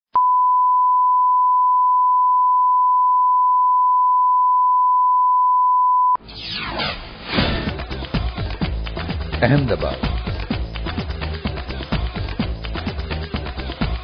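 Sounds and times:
reference tone beep: 0.2s - 6.2s
film soundtrack: 6.2s - 14.0s.

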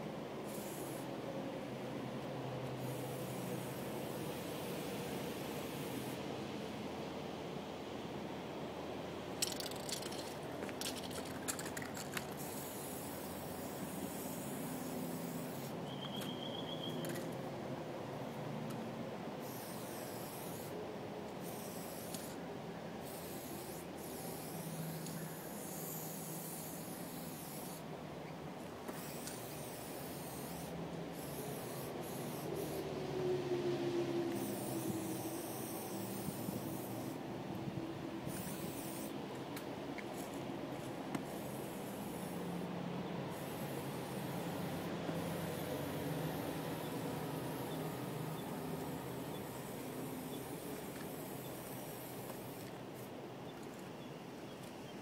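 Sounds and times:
spray paint can hissing: 0.5s - 1.1s, 2.8s - 4.8s, 9.4s - 15.8s, 19.4s - 20.8s, 21.4s - 22.4s, 23.0s - 27.9s, 28.9s - 32.9s, 34.3s - 37.2s, 38.3s - 39.2s, 41.2s - 42.6s, 43.3s - 53.1s.

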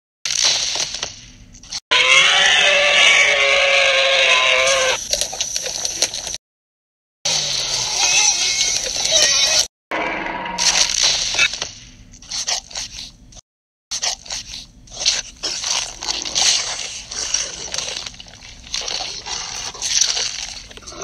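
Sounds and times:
chewing and crunching: 13.9s - 21.0s.

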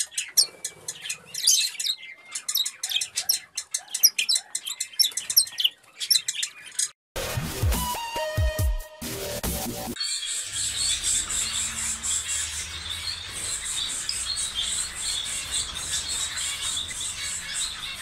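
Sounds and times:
small birds chirping and squawking: 0.0s - 7.0s, 10.0s - 18.0s
electronic music with bass sweeps: 7.2s - 10.0s.

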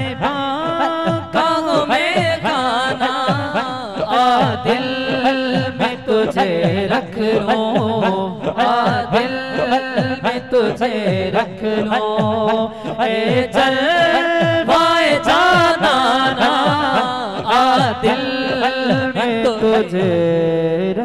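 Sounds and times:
men singing on microphones: 0.0s - 21.0s.

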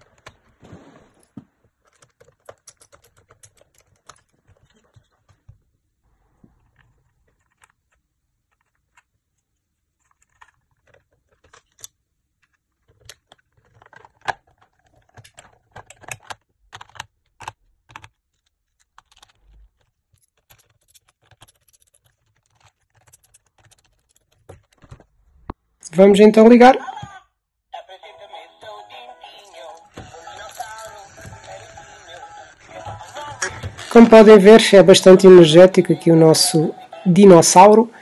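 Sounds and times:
plastic toy parts clicking: 1.8s - 5.4s, 10.0s - 25.0s.

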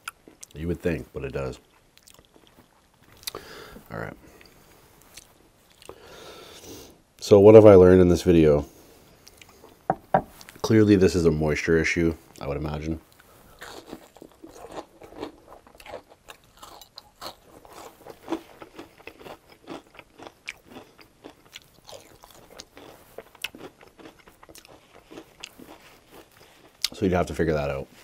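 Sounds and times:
crunchy chewing: 13.1s - 27.0s.

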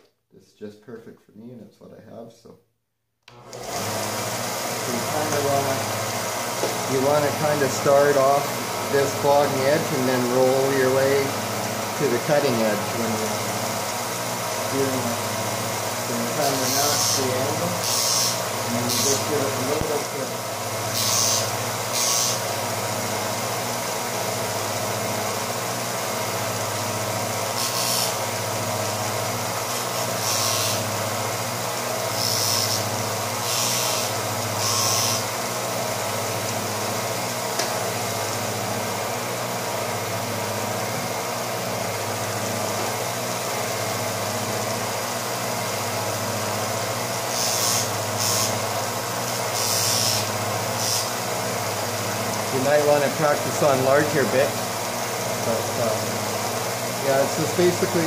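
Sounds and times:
belt sander motor humming: 3.3s - 58.0s
drill bit grinding on abrasive: 3.8s - 23.7s, 26.6s - 37.0s, 46.9s - 51.5s.

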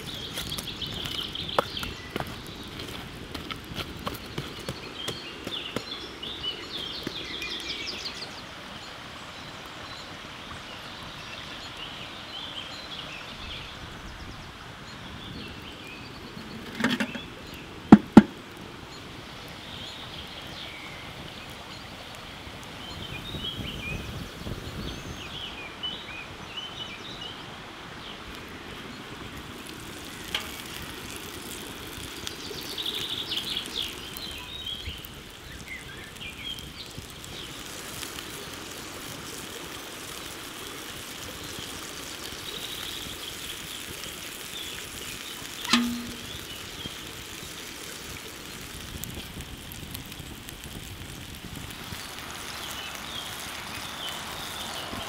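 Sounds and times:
outdoor background hiss: 0.0s - 55.0s
small birds chirping: 0.0s - 55.0s
sharp loud ringing knocks: 45.7s - 46.4s.

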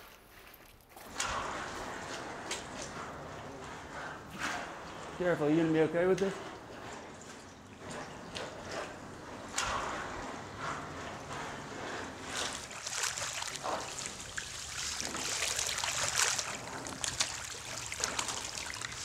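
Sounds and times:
boots splashing through shallow water: 12.2s - 19.0s.

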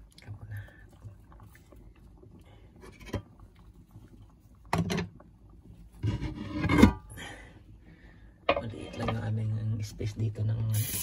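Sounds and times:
rubbing and scraping handling noises: 5.8s - 7.0s.

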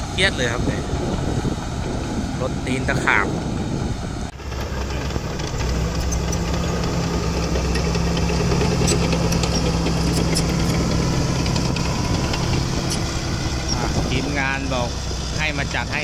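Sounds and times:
diesel engine running: 0.0s - 16.0s.

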